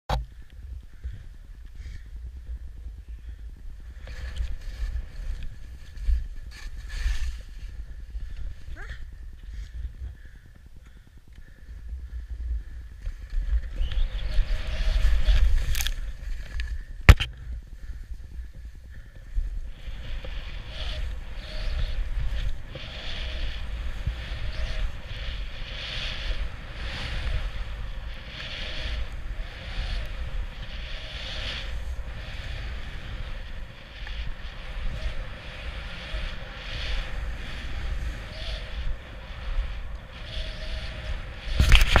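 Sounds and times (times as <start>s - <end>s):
wind buffeting microphone: 0.1s - 42.0s
skis hissing through snow: 4.0s - 7.8s, 13.9s - 16.5s, 19.8s - 42.0s.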